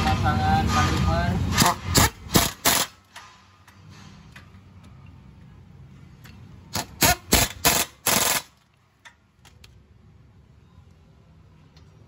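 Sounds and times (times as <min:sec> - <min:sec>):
air impact wrench rattling: 0:01.5 - 0:04.5, 0:06.7 - 0:08.7.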